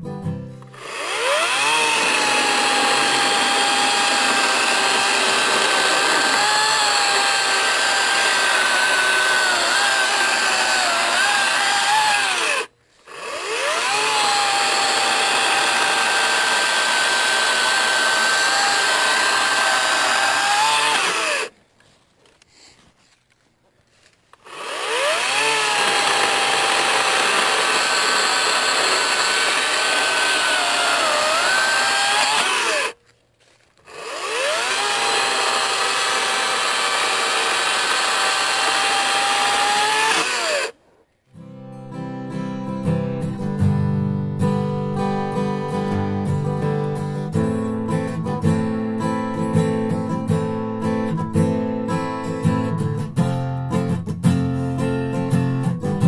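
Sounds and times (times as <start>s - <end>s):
electric chainsaw cutting logs: 0.7s - 21.5s, 24.4s - 33.0s, 33.8s - 40.8s.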